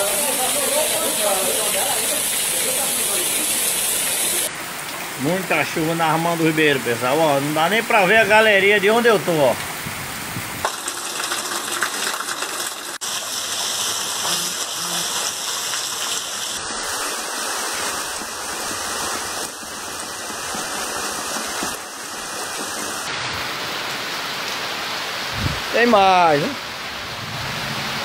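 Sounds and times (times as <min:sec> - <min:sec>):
heavy rain falling: 0:00.0 - 0:28.0
rainwater pouring off roof: 0:00.0 - 0:28.0.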